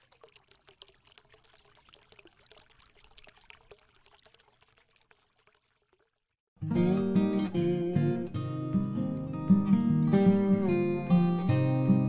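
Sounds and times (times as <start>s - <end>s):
water trickling and dripping: 0.0s - 6.5s.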